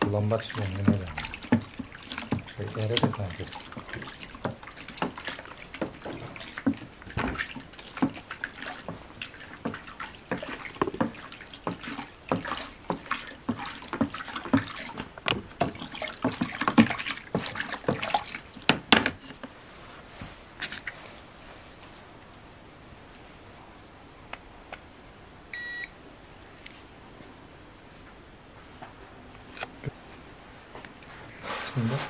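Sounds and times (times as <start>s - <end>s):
paddle knocking bucket sides: 0.0s - 19.4s
liquid sloshing in bucket: 0.0s - 22.2s.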